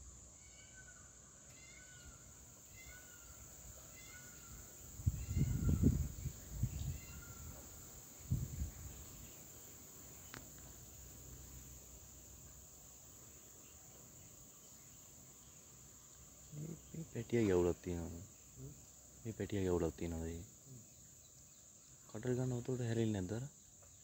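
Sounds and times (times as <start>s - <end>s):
high-pitched insect chorus: 0.0s - 24.0s.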